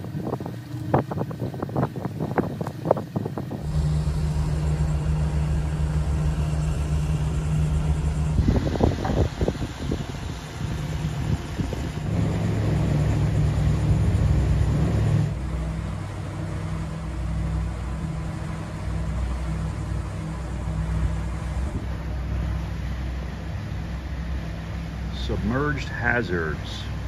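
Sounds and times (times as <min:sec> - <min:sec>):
boat engines droning: 0:00.0 - 0:27.0
water noise: 0:00.0 - 0:27.0
wind: 0:00.0 - 0:27.0.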